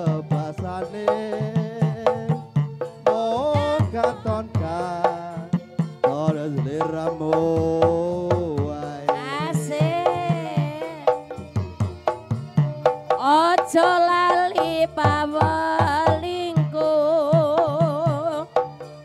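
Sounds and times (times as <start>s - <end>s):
hand drums beating rhythm: 0.0s - 19.0s
person singing wavering notes: 9.1s - 11.2s.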